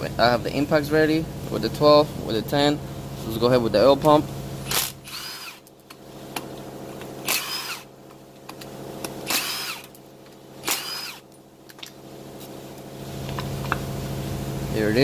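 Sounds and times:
impact wrench bursts: 4.6s - 5.7s, 7.0s - 8.0s, 8.9s - 10.0s, 10.6s - 11.3s.

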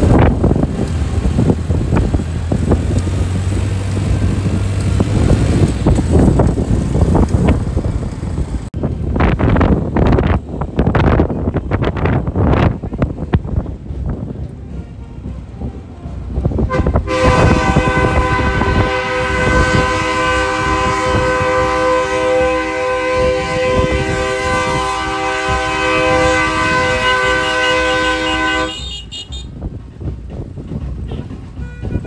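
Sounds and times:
engines rumbling: 0.0s - 32.0s
wind on microphone: 0.0s - 32.0s
vehicle horns multi-tone blast: 16.7s - 29.6s, 31.1s - 32.0s.

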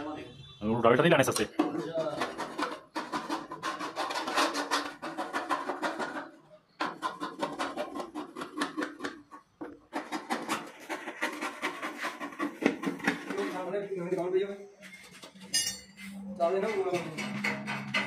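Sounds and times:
metal scraping strokes: 9.9s - 13.8s, 14.7s - 18.0s.

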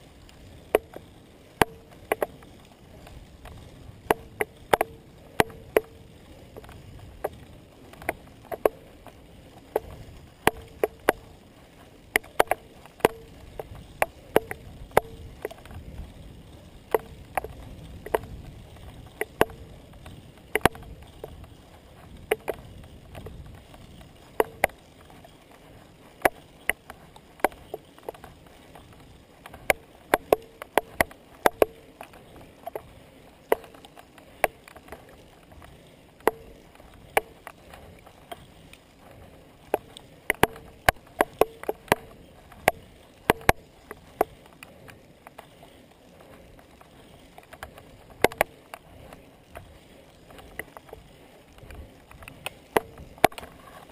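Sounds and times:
bicycle clicks and knocks: 0.0s - 53.9s
tyre and wind rumble: 0.0s - 53.9s.

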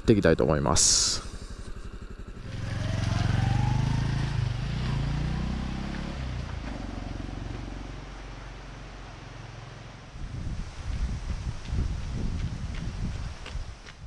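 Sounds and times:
motorcycle engine revving: 0.0s - 10.5s.

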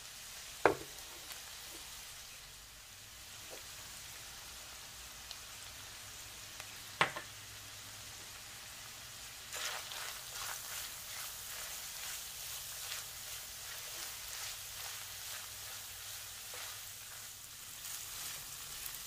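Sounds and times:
meat and onions sizzling in a pan: 0.0s - 19.0s
spatula scraping through meat: 9.5s - 19.0s.

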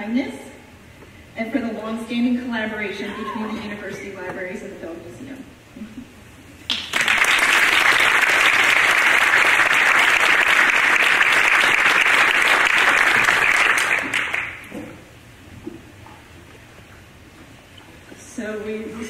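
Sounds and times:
audience applauding: 6.7s - 14.7s.

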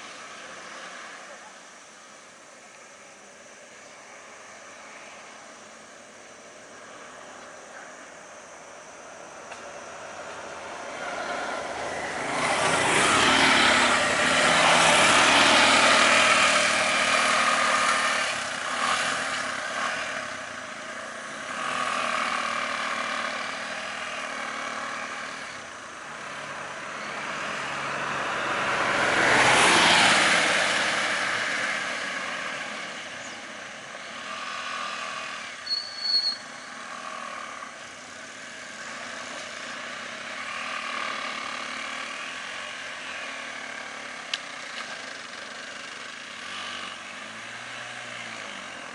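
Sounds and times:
auto-rickshaw engines running: 0.0s - 48.9s
road traffic: 0.0s - 48.9s
vehicle passing by: 9.8s - 35.6s, 36.6s - 48.9s.

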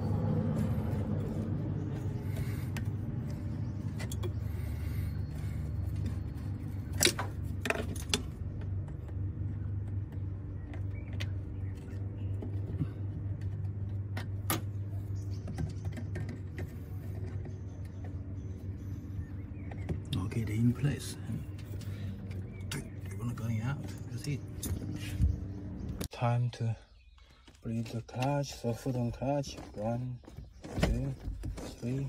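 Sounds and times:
steady low hum: 0.0s - 26.2s.

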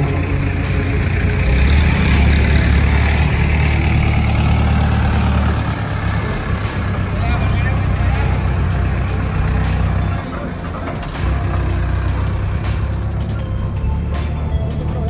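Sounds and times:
diesel crane driving past: 0.0s - 15.0s.

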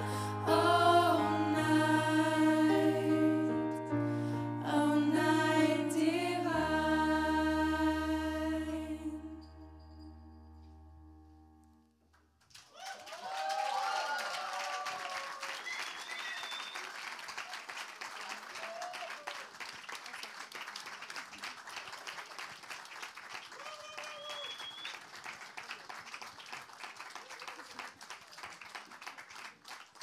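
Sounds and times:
choir singing final chord: 0.0s - 9.4s
audience applauding: 12.5s - 30.0s
people cheering: 12.6s - 20.2s, 23.3s - 25.0s, 27.0s - 28.4s.

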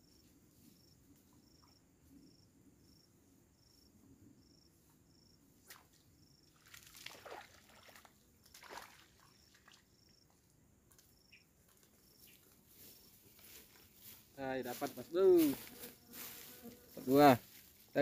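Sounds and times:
insect high chirps: 11.0s - 17.6s.

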